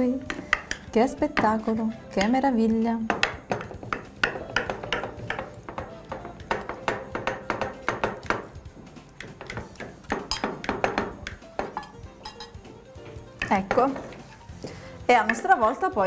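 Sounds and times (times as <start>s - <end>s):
utensils clinking on ceramic dishes: 11.7s - 12.6s.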